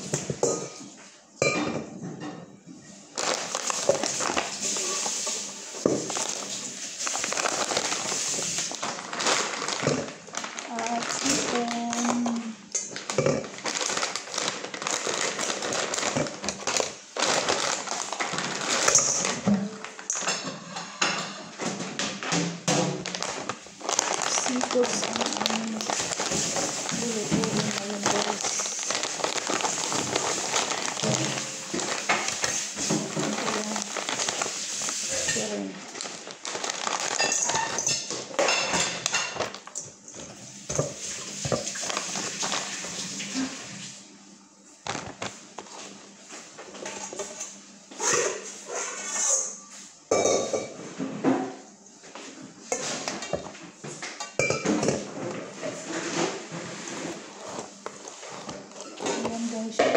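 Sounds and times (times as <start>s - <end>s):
plastic bag crinkling: 3.1s - 20.5s, 23.0s - 43.6s, 44.8s - 47.3s, 55.0s - 59.8s
frozen seafood clattering into bowl: 3.1s - 43.5s, 44.8s - 45.9s, 52.7s - 53.5s, 54.1s - 59.8s.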